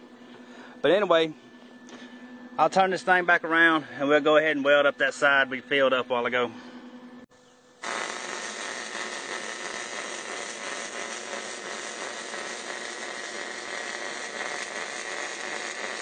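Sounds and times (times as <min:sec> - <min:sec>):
welding arc crackling and hissing: 0:07.8 - 0:16.0.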